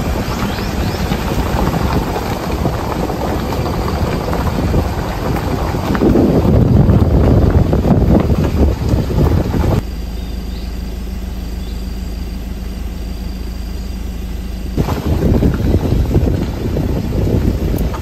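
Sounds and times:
wind buffeting microphone: 0.0 - 9.8, 14.8 - 18.0
low hum: 0.0 - 18.0.

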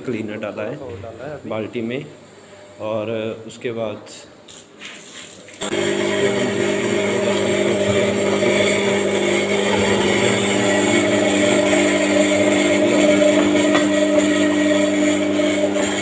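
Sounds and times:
pad scrubbing wet tile: 4.5 - 5.6
floor scrubber motor humming: 5.6 - 16.0.

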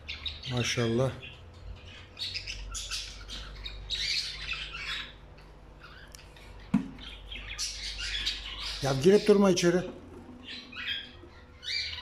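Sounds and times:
budgerigars chattering and squawking: 0.0 - 12.0
sharp knock: 6.7 - 7.0.

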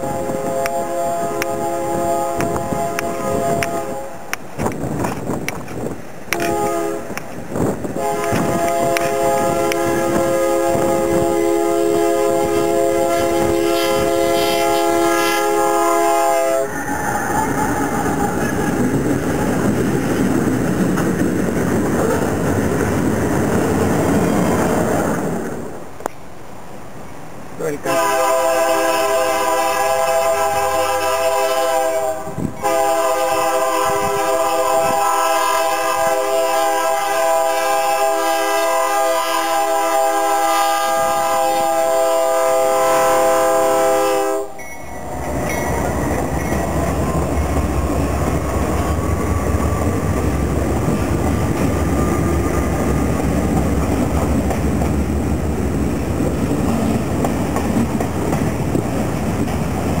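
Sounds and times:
locomotive air horn blowing: 0.0 - 4.3, 6.3 - 7.2, 8.0 - 18.3, 27.8 - 46.8
train rumbling past on rails: 0.0 - 60.0.

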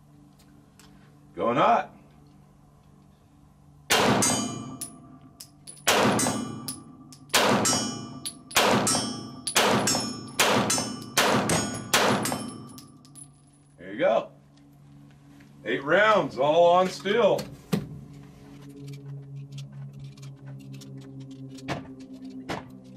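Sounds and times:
pistol shots: 3.9 - 4.7, 5.9 - 6.6, 7.3 - 12.6
bullet clanging on steel target: 4.2 - 13.8.

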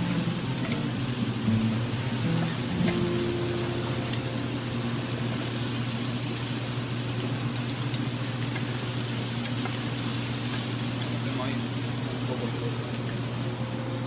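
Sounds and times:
low hum: 0.0 - 6.9
food sizzling in a pan: 0.0 - 14.0.

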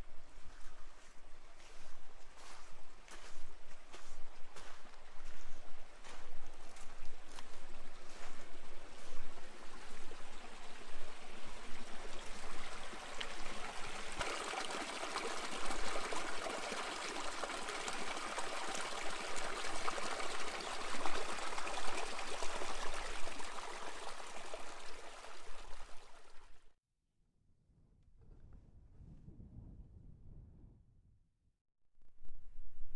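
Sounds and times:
stream splashing over rocks: 6.8 - 26.6.

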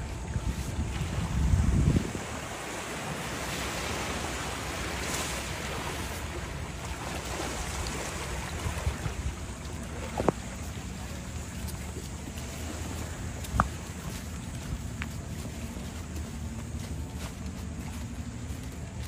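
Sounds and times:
wind buffeting microphone: 0.0 - 5.0
surf washing on shore: 0.0 - 19.0.

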